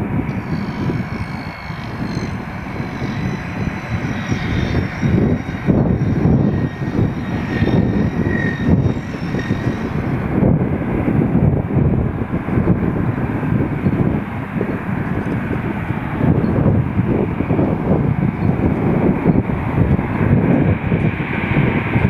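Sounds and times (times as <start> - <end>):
jet engines taxiing: 0.0 - 22.0.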